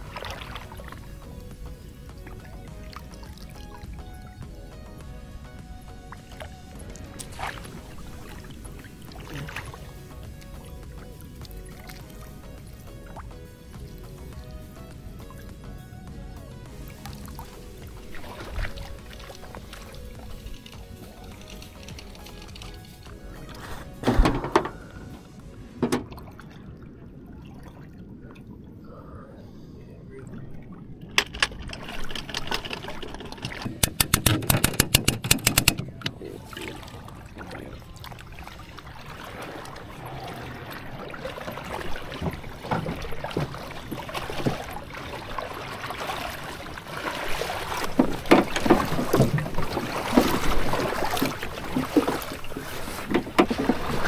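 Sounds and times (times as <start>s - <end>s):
shallow water sloshing: 0.0s - 54.0s
knocks and thuds: 24.0s - 25.0s, 25.8s - 26.2s, 31.2s - 36.2s
rapid sharp clicks: 31.2s - 36.1s.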